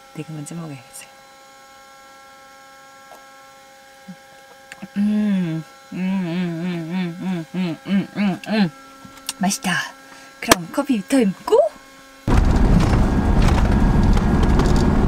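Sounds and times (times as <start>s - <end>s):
woman humming a tune: 4.8s - 8.8s.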